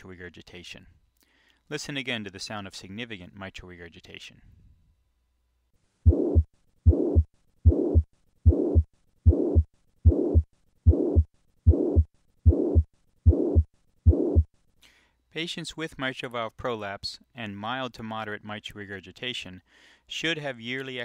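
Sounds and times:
heartbeat: 6.0s - 14.5s
whooshing heart murmur: 6.0s - 14.5s.

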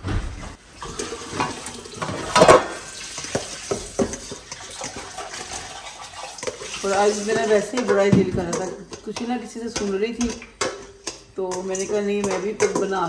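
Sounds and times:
pot hissing on burner: 0.7s - 7.8s
pot and utensils knocking and scraping: 0.8s - 13.0s
utensils clattering: 0.8s - 13.0s.

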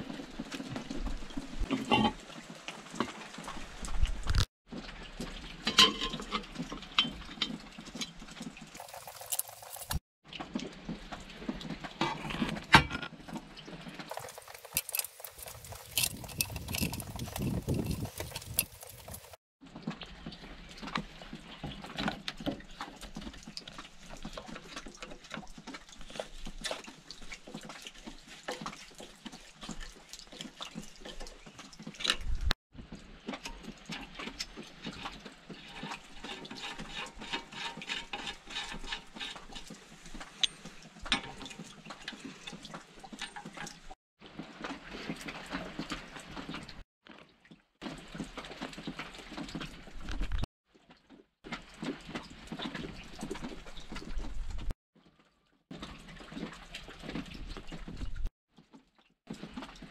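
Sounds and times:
hand tools clicking and knocking: 14.1s - 19.4s.

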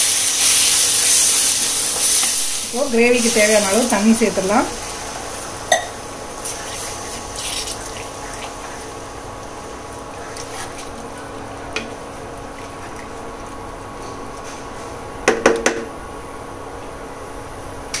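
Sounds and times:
cooktop hum: 0.0s - 18.0s
spatula knocks on pan: 15.3s - 15.9s.

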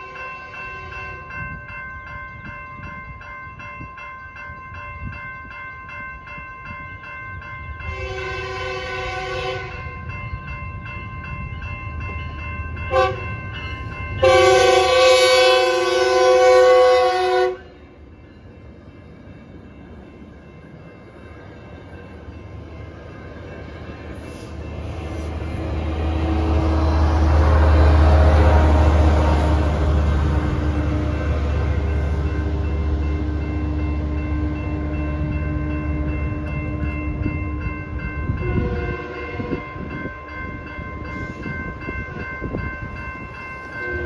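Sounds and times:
crossing bells ringing: 0.0s - 44.0s
train rumble: 0.0s - 44.0s
train horn blasts: 7.9s - 9.9s, 12.9s - 13.4s, 14.2s - 17.8s, 38.3s - 39.7s, 43.8s - 44.0s.

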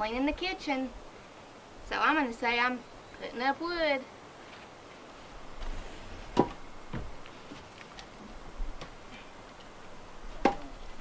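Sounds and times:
firewood pieces knocking together: 10.4s - 10.7s.

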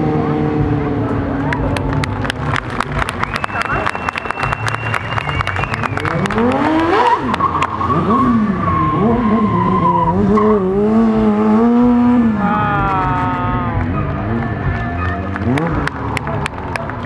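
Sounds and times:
motorcycle engine revving: 5.4s - 17.0s.

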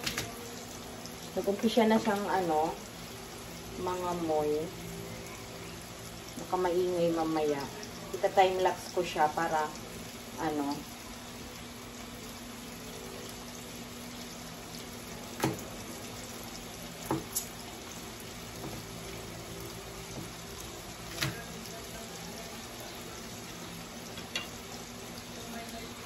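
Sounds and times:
steaks sizzling in a pan: 0.0s - 26.0s
knife knocking on chopping board: 17.0s - 17.3s.

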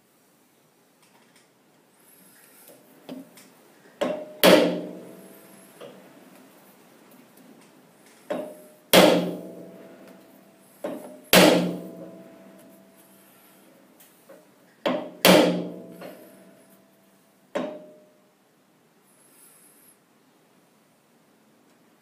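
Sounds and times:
hammer striking metal workpiece: 4.0s - 5.2s, 8.3s - 9.9s, 10.8s - 12.7s, 14.9s - 16.4s, 17.6s - 18.1s.

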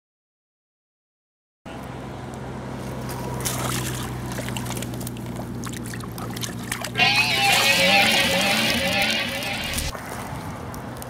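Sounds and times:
hands splashing in water: 2.8s - 10.3s
low hum: 3.2s - 9.9s.

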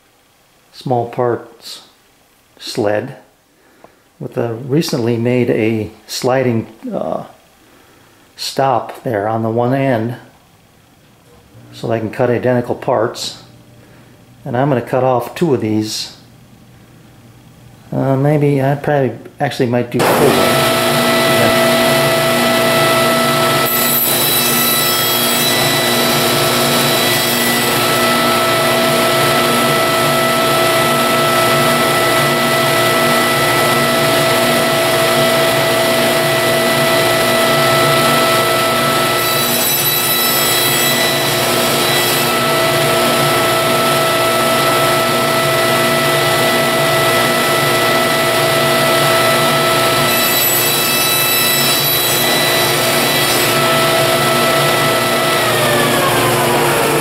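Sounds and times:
table saw cutting wood: 20.0s - 57.0s.

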